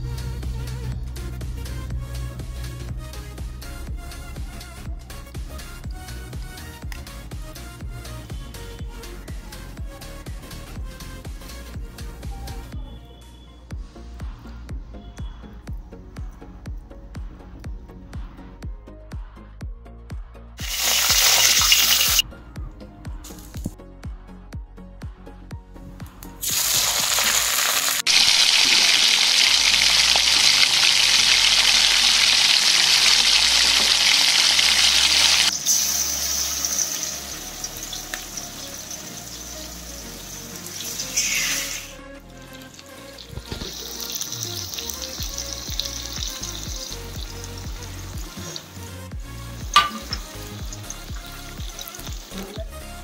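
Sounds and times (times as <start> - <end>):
fish sizzling in hot oil: 20.6 - 22.2, 26.4 - 52.7.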